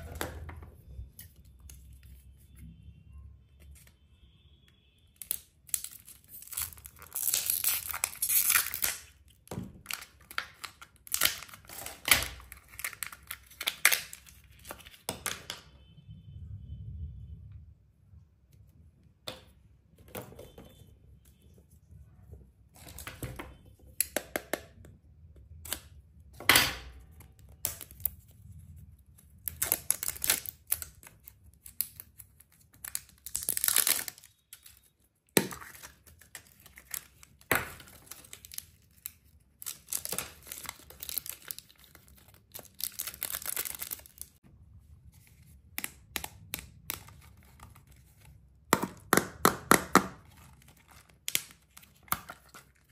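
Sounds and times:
packaging crinkling and tearing: 29.4s - 34.8s, 35.6s - 44.4s.

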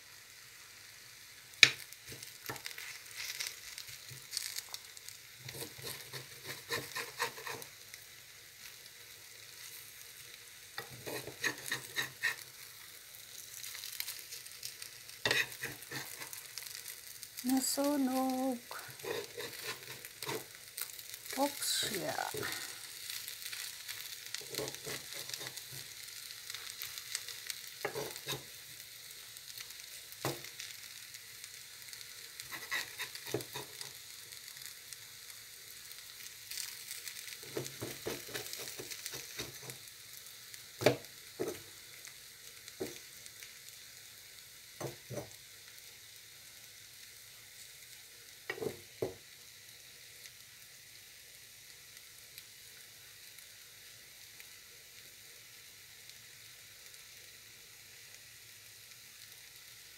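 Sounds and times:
food sizzling in a frying pan: 0.0s - 59.9s
spoon knocking and scraping pan: 5.5s - 7.7s, 10.8s - 12.4s, 15.2s - 16.4s, 19.0s - 20.6s, 24.4s - 25.9s, 27.8s - 28.5s, 32.5s - 33.9s, 37.5s - 39.8s, 40.8s - 41.6s, 44.8s - 45.4s, 48.5s - 49.2s.

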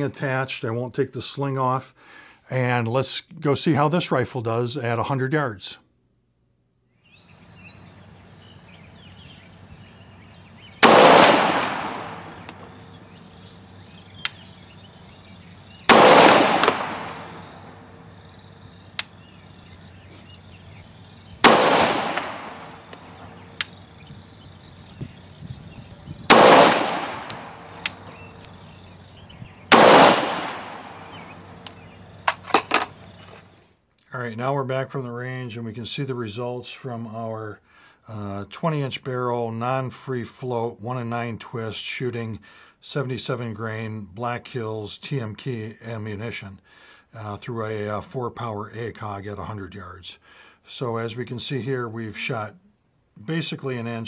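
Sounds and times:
rifle shots: 10.8s - 13.1s, 15.8s - 18.2s, 21.4s - 23.9s, 26.2s - 28.4s, 29.7s - 33.1s
faint sharp clicks: 14.2s - 14.4s, 18.9s - 19.2s, 22.9s - 23.8s, 27.3s - 28.6s, 31.6s - 33.4s.

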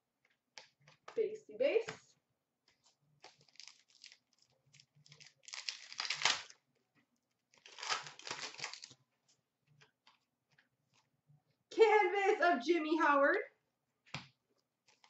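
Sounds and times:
foil wrapper crinkling and tearing: 3.2s - 6.6s, 7.5s - 9.0s.

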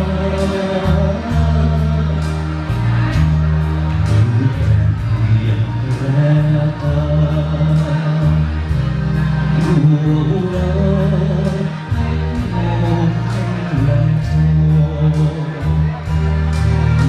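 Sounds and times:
man singing into a microphone: 0.0s - 3.2s, 4.0s - 17.0s
backing music with deep bass: 0.0s - 17.0s.

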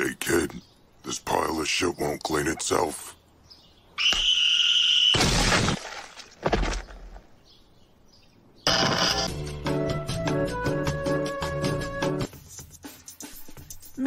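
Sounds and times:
loud breaking crash: 5.1s - 6.8s
music with a beat: 9.8s - 14.0s.

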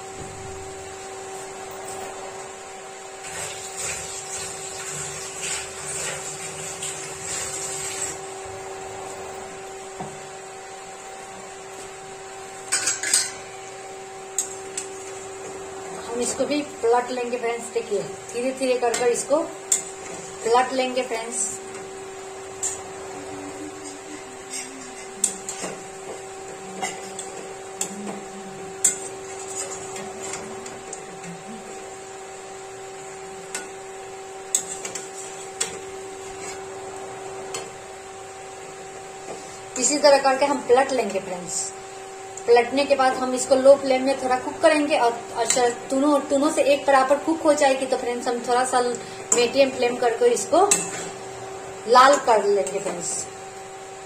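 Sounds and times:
steady hum: 0.0s - 54.0s
batter sizzling in hot oil: 3.1s - 8.4s.

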